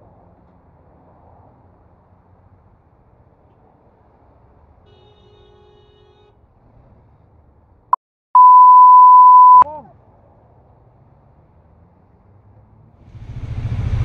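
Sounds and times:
faint traffic rumble: 0.0 - 7.9, 9.5 - 14.0
high-pitched censor beep: 8.4 - 9.7.

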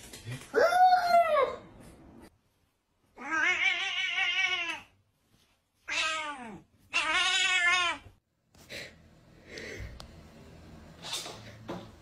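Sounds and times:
cat meowing: 5.9 - 8.1.

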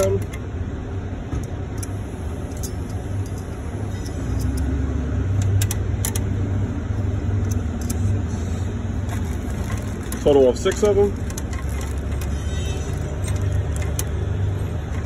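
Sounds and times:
steady low rumble: 0.2 - 15.0
metal washers clicking: 1.7 - 6.3, 7.3 - 8.1, 9.0 - 15.0.

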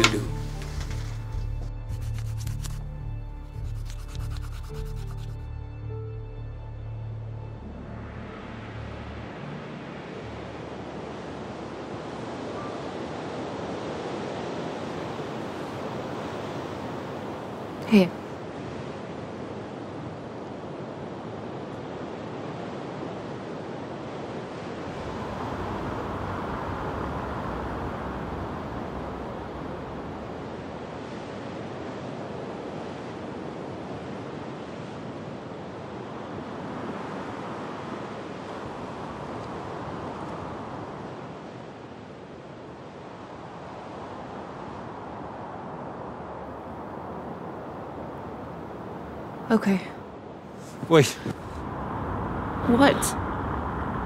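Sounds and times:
wind: 5.6 - 54.0
water noise: 24.0 - 49.5.

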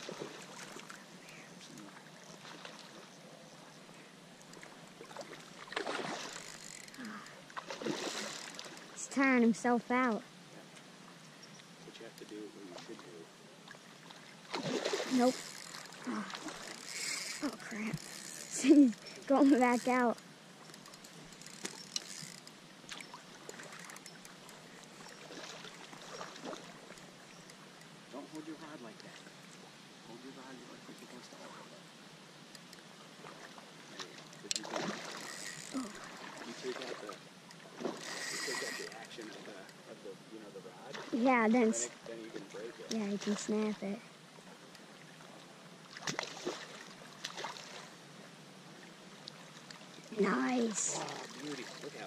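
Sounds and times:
fish splashing at water surface: 5.1 - 6.6, 7.5 - 9.0, 14.1 - 17.4, 33.3 - 39.5, 45.9 - 47.9.

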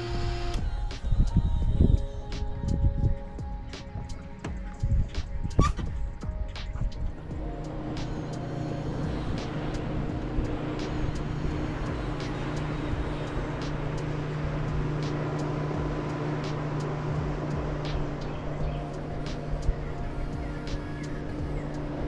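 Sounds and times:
rush of wind and water: 0.6 - 22.0
outboard motor running: 7.2 - 22.0.

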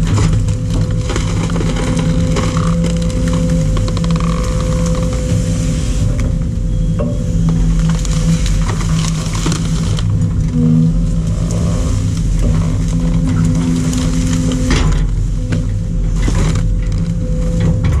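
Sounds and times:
grab crunching through debris: 0.0 - 5.3
sharp cracks and knocks: 0.0 - 5.4
excavator diesel engine running: 0.0 - 18.0.

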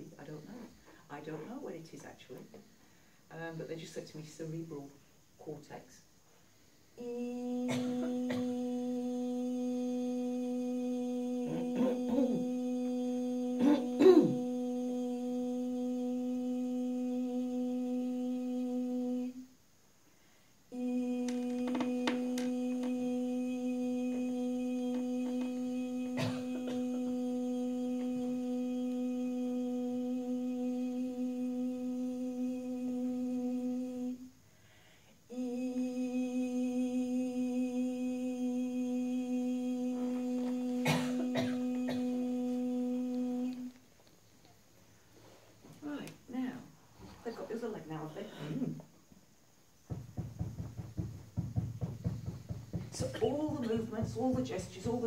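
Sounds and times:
wavering vocal sound: 6.9 - 19.6, 20.7 - 34.5, 35.2 - 44.1, 50.9 - 55.0
woman humming a low note: 20.7 - 34.2.

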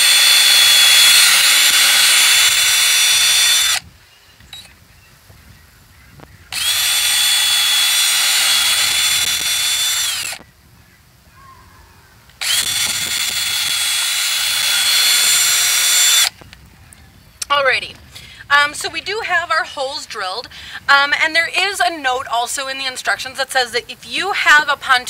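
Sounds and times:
cordless drill whining: 0.0 - 4.8, 6.5 - 10.4, 12.3 - 16.4.

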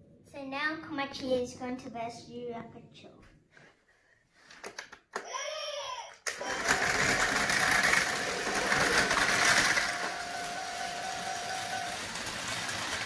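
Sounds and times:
toy train motors whirring: 6.3 - 13.0.

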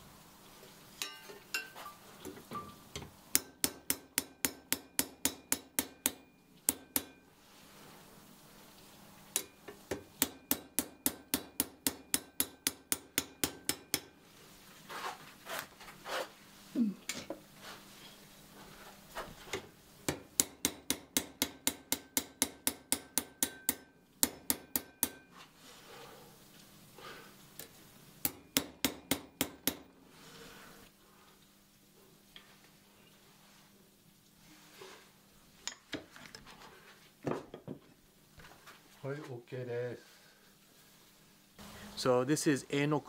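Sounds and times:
hammer tapping saw on anvil: 2.6 - 7.2, 9.3 - 14.2, 20.1 - 25.3, 27.6 - 29.9.

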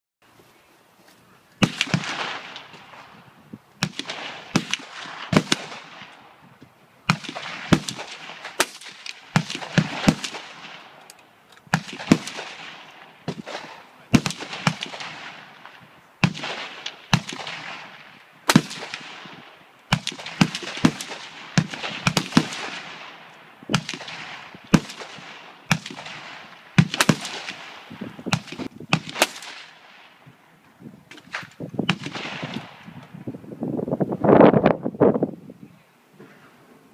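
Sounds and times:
gunshots echoing: 1.6 - 6.4, 7.1 - 11.0, 11.7 - 30.2, 31.1 - 33.0.

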